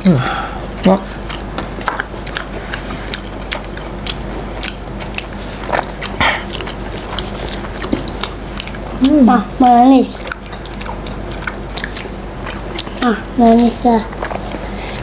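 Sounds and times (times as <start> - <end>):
crunchy biting and chewing: 1.1 - 15.0.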